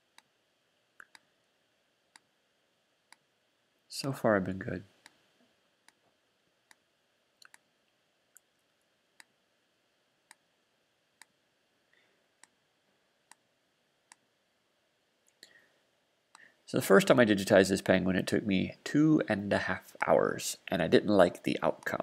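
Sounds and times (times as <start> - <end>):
computer mouse clicks: 7.4 - 7.6.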